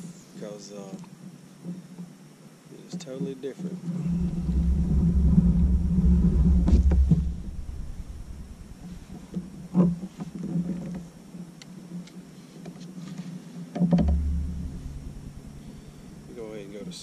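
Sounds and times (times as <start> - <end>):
low rumble: 3.9 - 9.7, 14.0 - 17.0
gear knocking against plastic kayak: 13.7 - 16.2.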